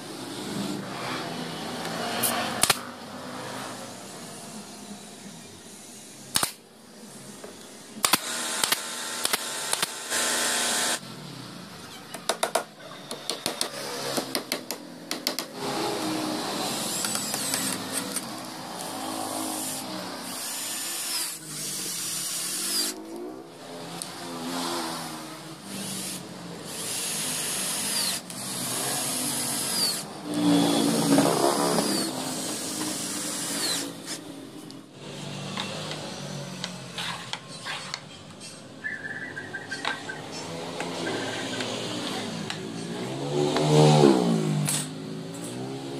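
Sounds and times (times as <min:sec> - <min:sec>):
sharp clicks: 0:06.3 - 0:06.6, 0:08.0 - 0:10.0
cordless drill driving screws: 0:08.0 - 0:11.0, 0:15.6 - 0:23.0, 0:25.6 - 0:34.2.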